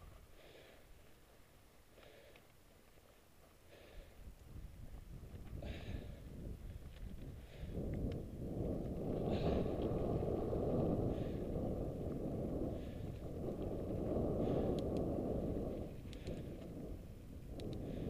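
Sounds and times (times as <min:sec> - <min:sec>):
wind buffeting microphone: 0:04.0 - 0:18.0
sharp clicks: 0:14.7 - 0:15.1, 0:16.0 - 0:16.7, 0:17.5 - 0:17.9.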